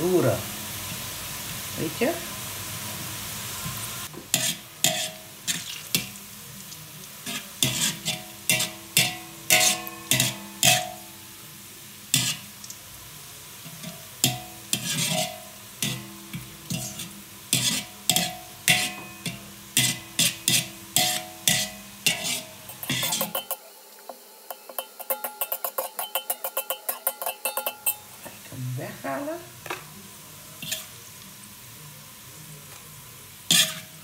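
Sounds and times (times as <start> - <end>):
onions sizzling in oil: 0.0 - 34.0
spatula clacking and scraping pan: 4.1 - 6.2, 7.2 - 11.1, 12.1 - 12.5, 13.6 - 28.5, 30.6 - 31.0, 33.5 - 34.0.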